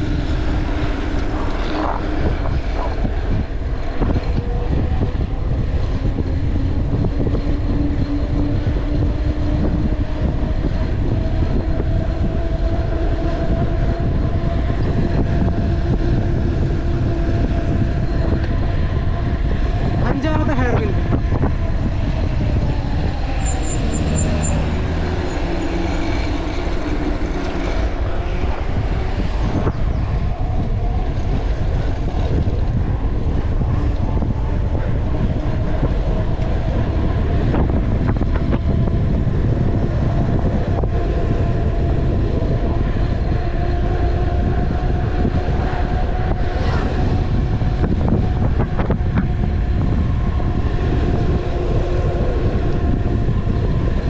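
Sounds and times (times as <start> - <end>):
bike tyre noise on pavement: 0.0 - 54.0
wind buffeting microphone: 0.0 - 54.0.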